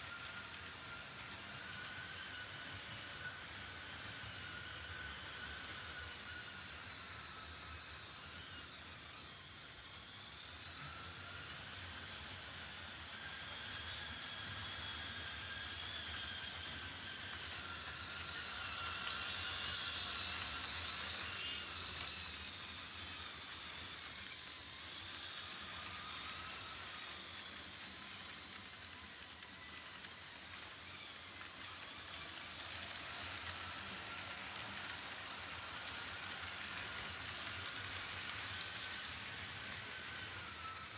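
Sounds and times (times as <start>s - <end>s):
model train motor whine: 0.0s - 40.9s
wheels hissing on rail: 0.0s - 40.9s.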